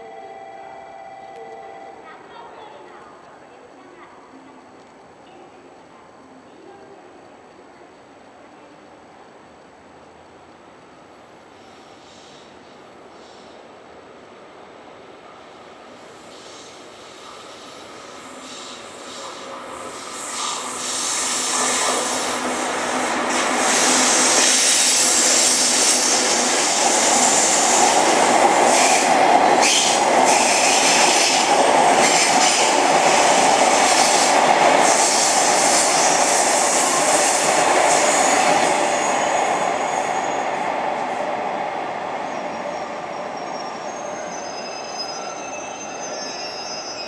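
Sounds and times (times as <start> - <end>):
train wheels rumbling on rails: 16.0 - 46.2
high squealing tones: 42.5 - 47.0.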